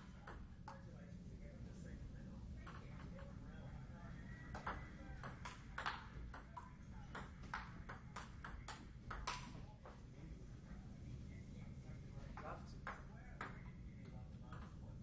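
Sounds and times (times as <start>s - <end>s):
table tennis ball clicking: 4.5s - 9.6s.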